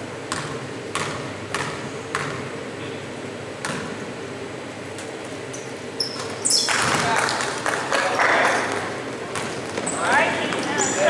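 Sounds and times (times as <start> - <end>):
basketball bouncing on court: 0.3 - 2.5, 3.6 - 4.0, 6.1 - 7.3, 8.7 - 10.9
sneaker squeaks: 5.4 - 7.1, 8.5 - 11.0
crowd noise: 6.4 - 11.0.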